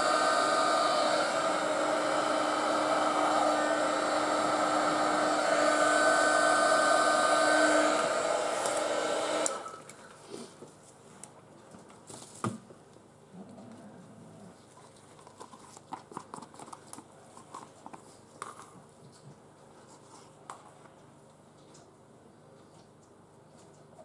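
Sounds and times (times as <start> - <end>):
heat gun fan hissing: 0.0 - 9.9.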